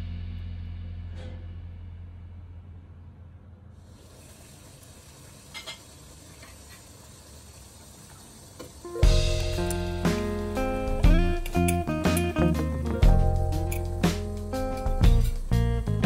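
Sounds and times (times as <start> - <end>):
water boiling in a pot: 3.8 - 9.9
background music: 8.9 - 16.0.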